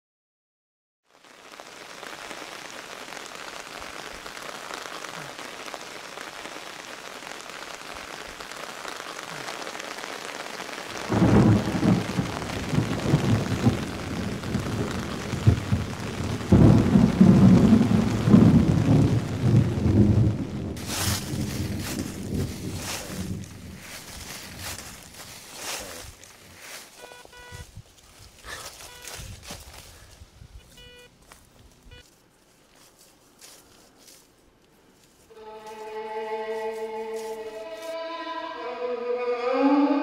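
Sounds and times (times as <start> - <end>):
steady rain: 1.0 - 32.1, 34.9 - 39.0
rolling thunder: 10.9 - 26.1.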